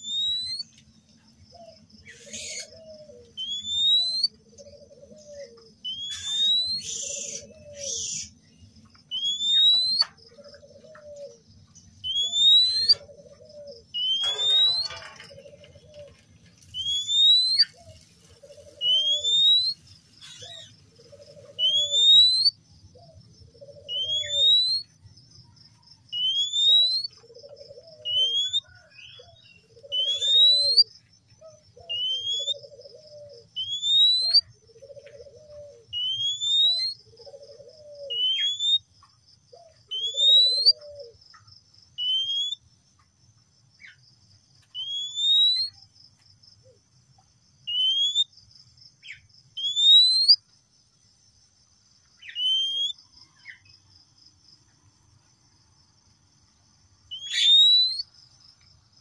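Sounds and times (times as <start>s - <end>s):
bird whistling call: 0.0s - 0.7s, 2.1s - 8.3s, 9.1s - 10.1s, 12.0s - 13.1s, 13.7s - 15.1s, 16.7s - 17.9s, 18.7s - 20.7s, 21.3s - 22.6s, 23.8s - 24.9s, 26.2s - 30.9s, 31.8s - 38.9s, 39.9s - 41.1s, 42.0s - 42.6s, 44.8s - 45.8s, 47.7s - 48.3s, 49.6s - 50.4s, 52.2s - 53.0s, 57.1s - 58.1s.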